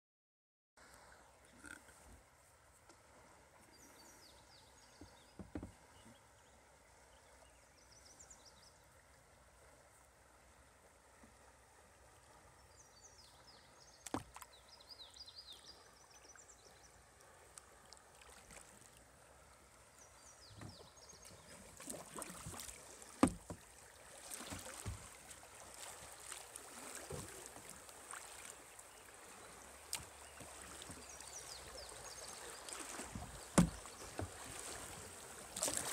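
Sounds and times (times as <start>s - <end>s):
knocks against kayak hull: 5.0s - 5.8s, 23.2s - 23.6s, 24.5s - 25.1s, 33.1s - 34.4s
water sloshing and rushing: 9.0s - 15.0s, 15.6s - 35.9s.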